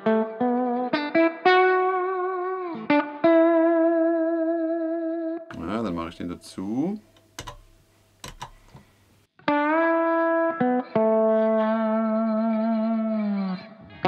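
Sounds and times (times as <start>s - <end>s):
slide electric guitar: 0.0s - 5.6s, 9.4s - 14.0s
pedal clicks: 7.2s - 8.9s.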